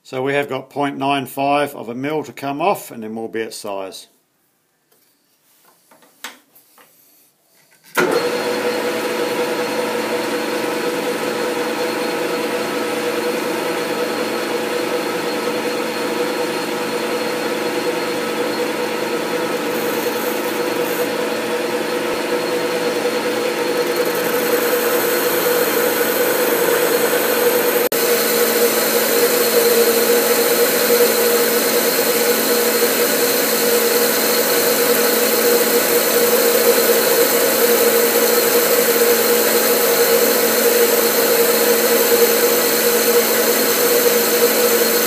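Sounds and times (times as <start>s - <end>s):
metal lathe running: 12.7s - 45.0s.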